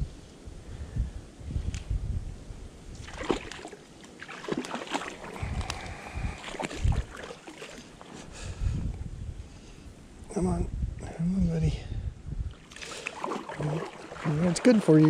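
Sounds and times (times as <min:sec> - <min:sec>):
wind rumbling on microphone: 0:00.0 - 0:03.8, 0:04.4 - 0:15.0
fish splashing in water: 0:03.0 - 0:08.1, 0:12.6 - 0:15.0.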